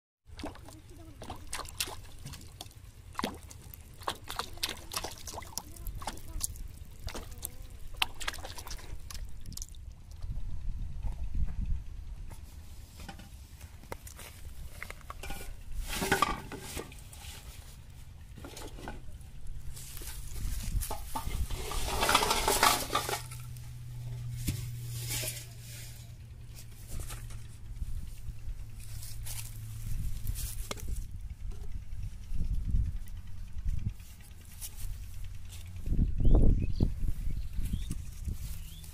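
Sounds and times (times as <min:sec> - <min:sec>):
water splashing and plopping: 0:00.3 - 0:10.2
plastic bottles rattling on metal basin: 0:00.4 - 0:09.6, 0:20.0 - 0:23.6.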